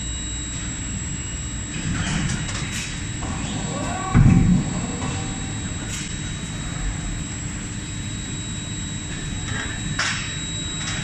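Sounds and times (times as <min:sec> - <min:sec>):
thin high whine: 0:00.0 - 0:11.0
machinery rumble: 0:01.6 - 0:11.0.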